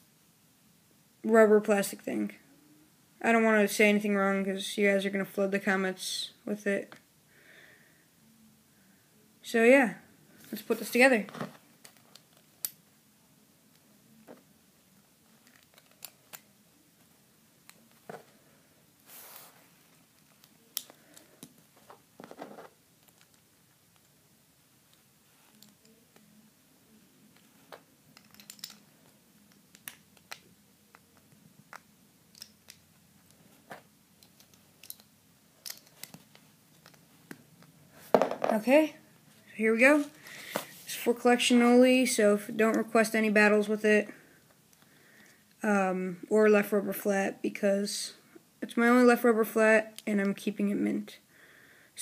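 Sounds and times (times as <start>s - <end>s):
plastic toy parts clicking: 15.4s - 16.5s, 28.1s - 28.9s, 29.5s - 30.5s, 31.2s - 32.8s, 34.2s - 37.0s.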